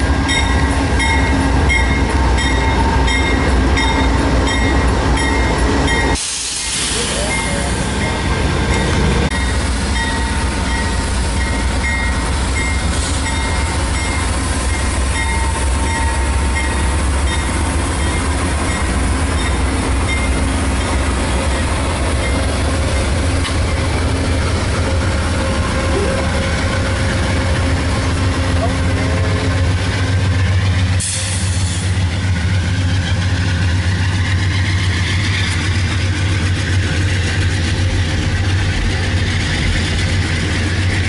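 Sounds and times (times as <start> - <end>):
diesel locomotive idling: 0.0 - 41.0.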